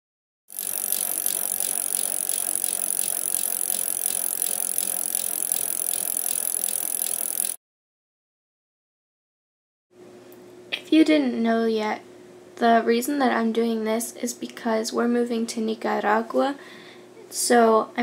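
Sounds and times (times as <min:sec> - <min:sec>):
fast regular rattling tick: 0:00.5 - 0:07.6.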